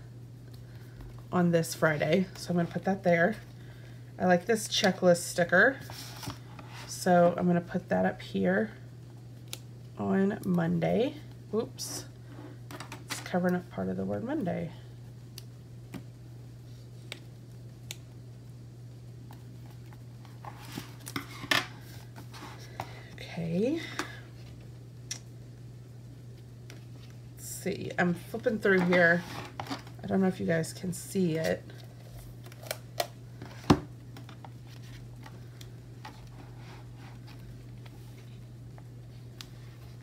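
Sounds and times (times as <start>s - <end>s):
low electrical hum: 0.0s - 40.0s.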